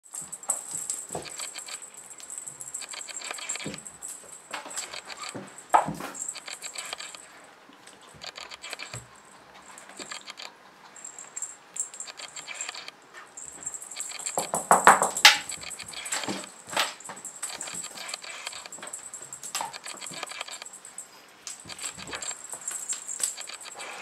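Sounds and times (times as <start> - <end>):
kitten playing with feather toy: 0.0 - 24.0
kitten scuffling: 0.0 - 24.0
small clicks: 1.2 - 3.8, 6.3 - 7.2, 8.2 - 9.0, 10.0 - 10.5, 11.2 - 13.0, 17.5 - 20.8, 21.5 - 24.0.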